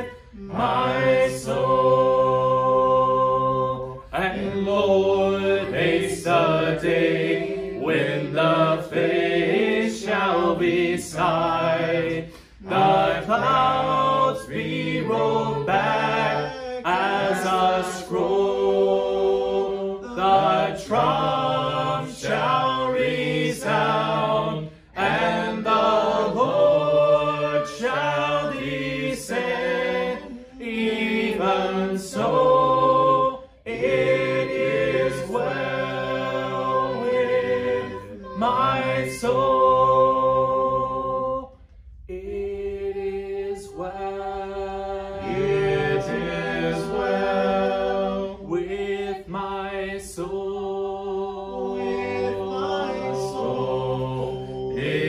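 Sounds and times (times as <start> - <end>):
voices singing a hymn in harmony: 0.0 - 55.0
singers breathing: 12.2 - 12.7.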